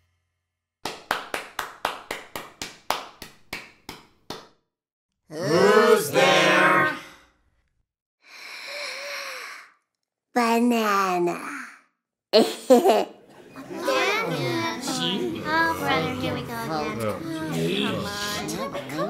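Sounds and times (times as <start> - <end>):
sparse hand claps: 0.8 - 4.6
voice: 5.3 - 7.1, 10.4 - 11.8, 12.4 - 19.0
breathy exhale: 8.2 - 9.7.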